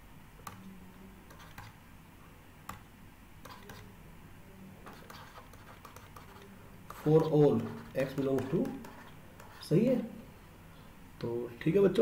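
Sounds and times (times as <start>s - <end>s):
low steady hum: 0.0s - 12.0s
stylus clicks on tablet: 2.6s - 3.9s.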